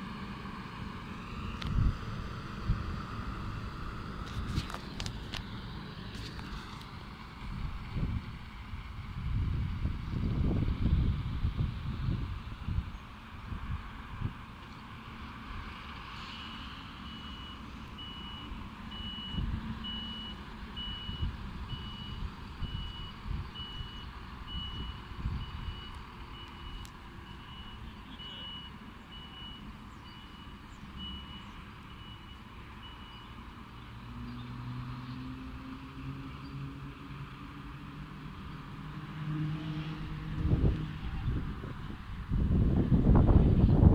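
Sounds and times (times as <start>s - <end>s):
truck engine rumble: 0.0s - 43.9s
reversing alarm beeping: 16.3s - 33.9s.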